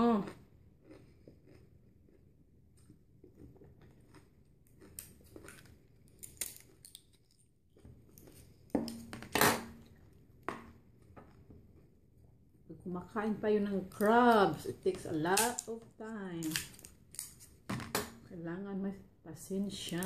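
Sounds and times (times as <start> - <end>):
crab shell cracking and crunching: 0.8 - 11.4, 15.3 - 18.2.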